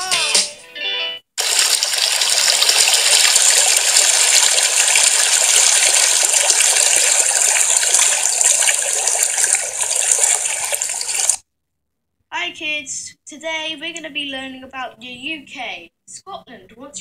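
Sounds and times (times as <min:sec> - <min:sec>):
waterfall splashing over rocks: 0:01.4 - 0:11.4.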